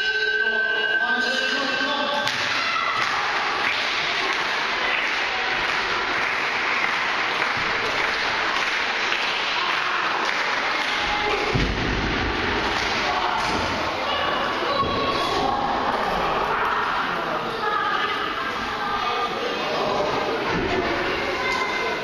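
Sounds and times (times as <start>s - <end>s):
crowd clapping: 2.2s - 14.0s.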